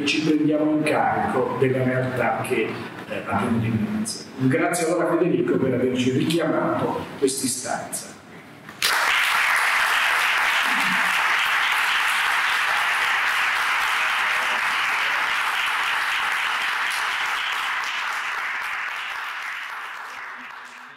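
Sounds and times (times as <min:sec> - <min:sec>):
audience applauding: 0:08.8 - 0:20.9.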